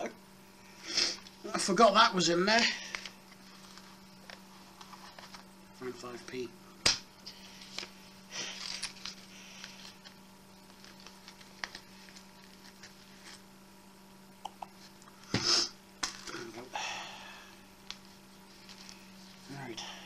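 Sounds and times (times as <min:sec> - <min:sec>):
wallet rustling and clicking: 0:08.6 - 0:13.4.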